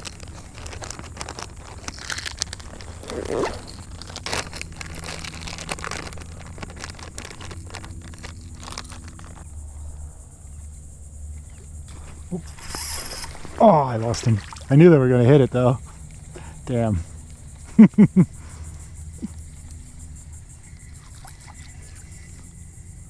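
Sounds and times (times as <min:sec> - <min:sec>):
plastic packet crinkling: 0:00.0 - 0:09.4
hands rummaging in fabric backpack: 0:00.0 - 0:09.5.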